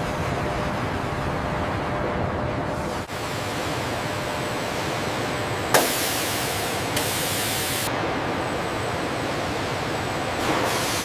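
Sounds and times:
factory background noise: 0.0 - 11.0
loud hiss of air: 5.7 - 7.9, 10.4 - 11.0.

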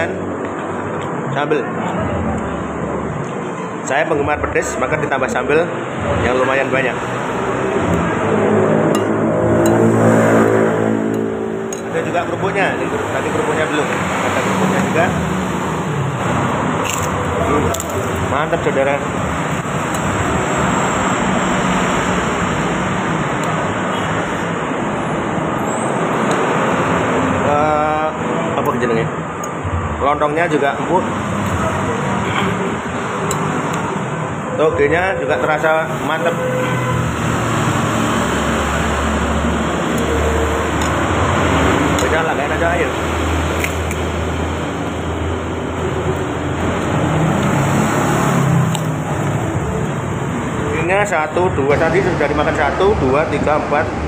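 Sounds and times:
road traffic noise: 0.0 - 54.0
vehicle engine passing: 4.6 - 54.0
spoons clicking on bowls: 16.8 - 18.2.

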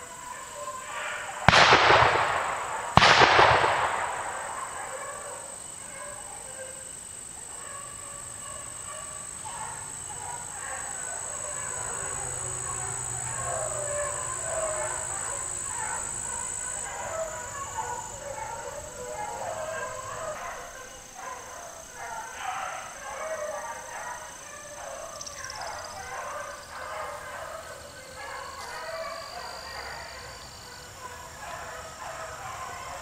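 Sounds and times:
dogs baying: 0.0 - 3.0, 3.6 - 33.0
gunshot: 1.5 - 5.0.

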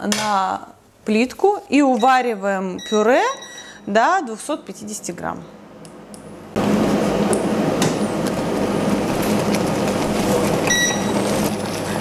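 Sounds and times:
short electronic beep: 10.7 - 11.1.

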